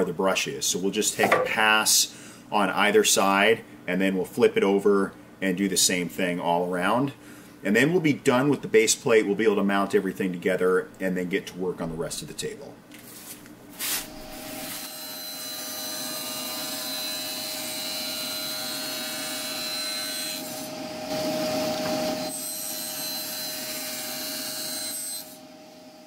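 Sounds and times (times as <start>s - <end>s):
table saw cutting acrylic: 14.1s - 25.5s.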